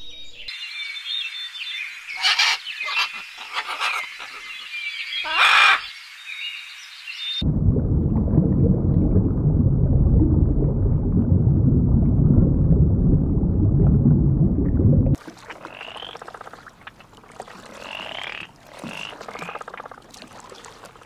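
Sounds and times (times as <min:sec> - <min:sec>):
frog trilling calls: 0:05.2 - 0:05.9, 0:15.6 - 0:16.6, 0:17.8 - 0:19.7
low underwater rumble: 0:07.4 - 0:15.2.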